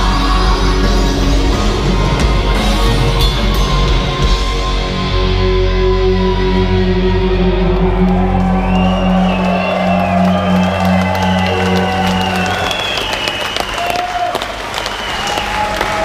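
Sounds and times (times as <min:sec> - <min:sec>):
metal band playing live: 0:00.0 - 0:12.6
guitar and bass chord ringing: 0:00.0 - 0:12.7
drums: 0:00.0 - 0:16.0.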